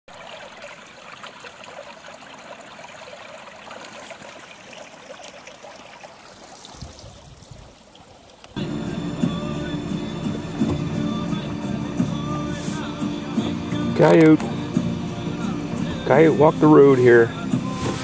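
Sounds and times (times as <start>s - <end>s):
creek running over rocks: 0.1s - 18.0s
low rumble: 8.6s - 12.6s.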